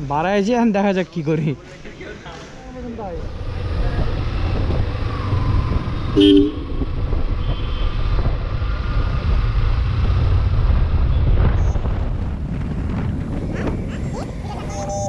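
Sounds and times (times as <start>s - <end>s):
vehicle engine rumble: 1.6s - 15.0s
vehicle horn toot: 6.2s - 6.8s, 7.4s - 8.0s.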